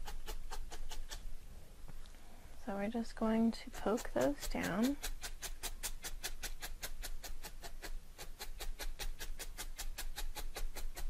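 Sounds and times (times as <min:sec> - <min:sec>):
felting needle poking into foam: 0:00.0 - 0:01.2, 0:03.7 - 0:11.0.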